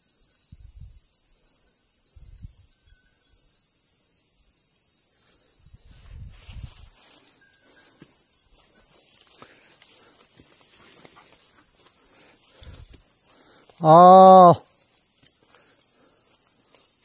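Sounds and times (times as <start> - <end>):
insect chorus chirring: 0.0 - 17.0
footsteps on grassy path: 5.9 - 13.8, 14.7 - 17.0.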